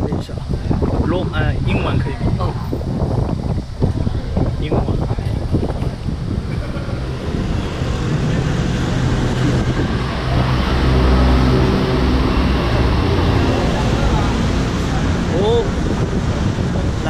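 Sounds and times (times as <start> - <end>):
passing vehicle engines droning: 5.8 - 17.0.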